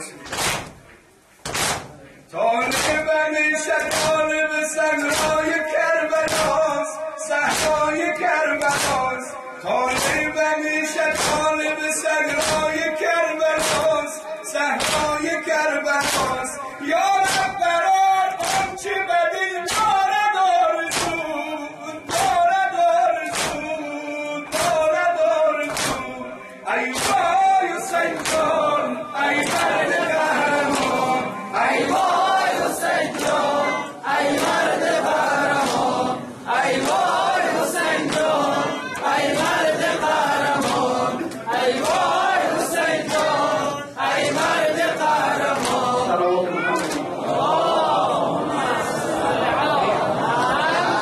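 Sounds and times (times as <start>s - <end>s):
hands slapping chests: 0.2s - 2.0s, 2.6s - 3.1s, 3.8s - 4.3s, 5.0s - 5.6s, 6.2s - 6.7s, 7.5s - 9.2s, 9.9s - 10.3s, 11.0s - 11.7s, 12.3s - 12.9s, 13.6s - 14.1s, 14.8s - 15.2s, 15.9s - 16.6s, 17.2s - 17.7s, 18.3s - 18.9s, 19.6s - 20.0s, 20.8s - 21.3s, 23.2s - 23.8s, 24.5s - 24.9s, 25.6s - 26.2s, 26.8s - 46.0s, 46.7s - 47.1s
man chanting a lament: 2.2s - 31.7s.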